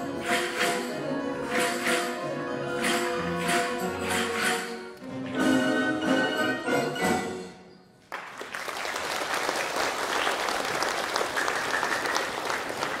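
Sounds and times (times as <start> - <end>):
folk orchestra chords: 0.0 - 7.7
audience applause: 8.1 - 13.0.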